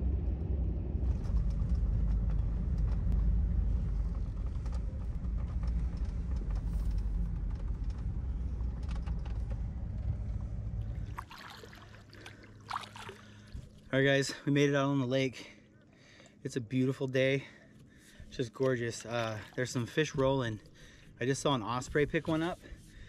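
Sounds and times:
pickup engine and road rumble: 0.0s - 11.3s
faint rattles: 1.0s - 11.1s.

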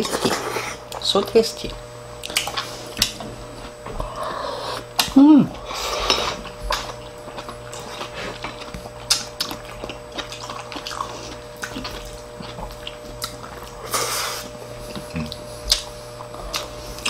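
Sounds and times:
person vocal sound: 4.0s - 5.8s.

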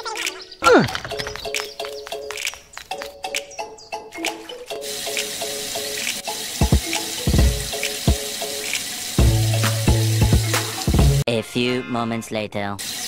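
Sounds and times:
water from hose splashing: 4.8s - 11.2s.

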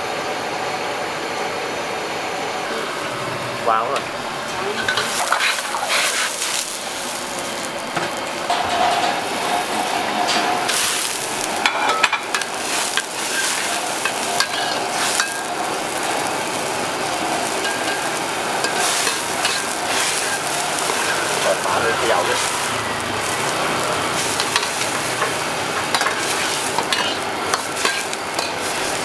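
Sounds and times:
noodles sizzling in hot oil: 2.6s - 29.0s
metal spatula scraping wok: 4.4s - 7.7s, 8.5s - 16.3s, 17.1s - 29.0s.

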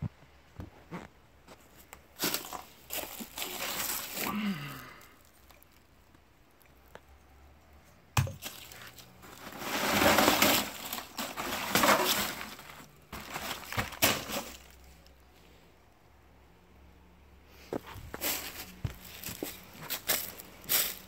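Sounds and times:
plastic bag rustling: 1.6s - 5.8s, 8.4s - 15.1s, 17.9s - 21.0s
rustling through dry leaves: 2.2s - 5.4s, 8.4s - 15.1s, 18.0s - 21.0s.

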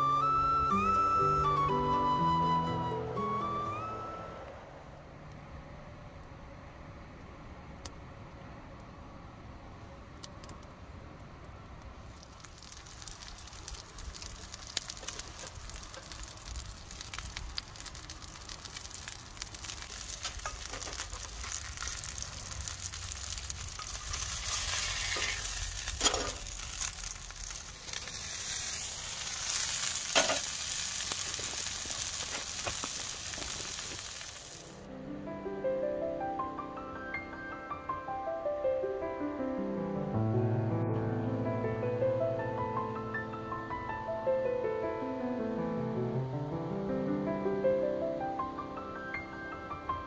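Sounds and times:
meat patty sizzling: 12.0s - 34.9s.

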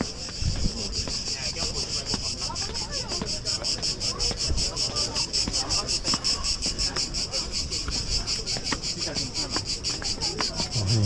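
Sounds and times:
insects calling in pulses: 9.7s - 11.0s.

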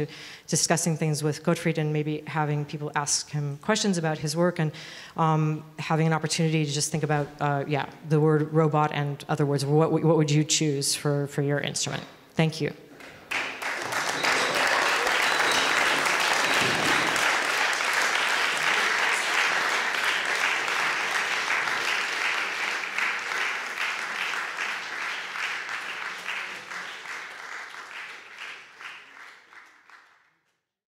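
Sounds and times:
audience applauding: 13.0s - 30.4s.

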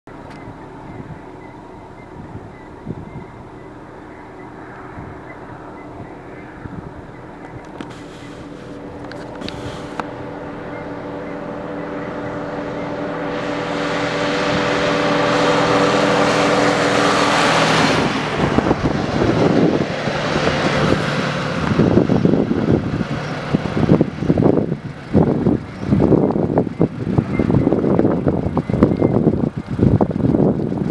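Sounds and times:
wind buffeting microphone: 0.1s - 30.9s
truck engine passing by: 0.4s - 30.9s.

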